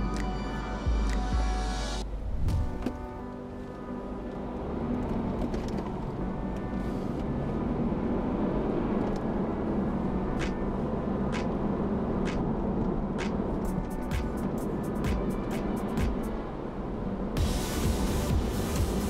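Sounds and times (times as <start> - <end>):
car road and engine rumble: 0.0 - 19.0.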